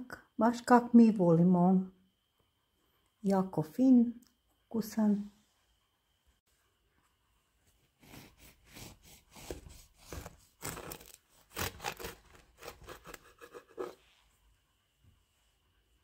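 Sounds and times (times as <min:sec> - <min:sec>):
knife sawing through cake: 0:08.0 - 0:14.0.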